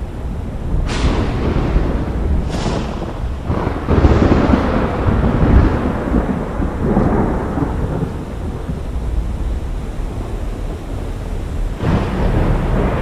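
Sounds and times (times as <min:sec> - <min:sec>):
storm hiss: 0:00.0 - 0:13.0
thunder crack and rumble: 0:00.0 - 0:13.0.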